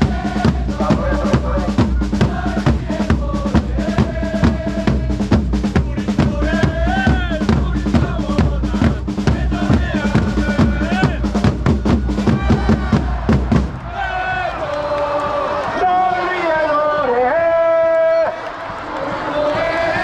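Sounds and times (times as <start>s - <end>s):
large drums beating fast: 0.0s - 14.5s
crowd singing a chant: 0.0s - 16.5s, 18.6s - 20.0s.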